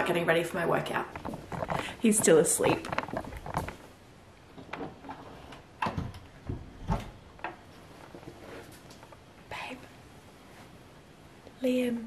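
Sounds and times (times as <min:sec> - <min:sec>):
soft footsteps: 0:01.0 - 0:04.0
wooden door knocks and clicks: 0:05.8 - 0:07.2.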